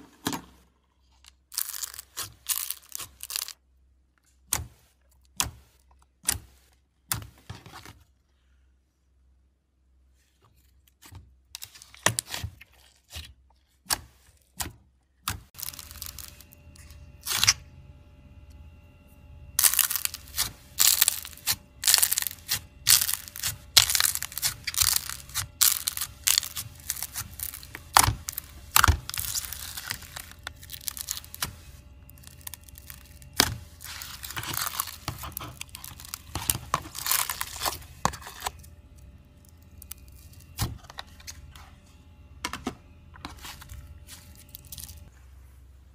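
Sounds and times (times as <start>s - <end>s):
slime clicking and crackling: 1.5s - 3.6s, 19.6s - 37.8s.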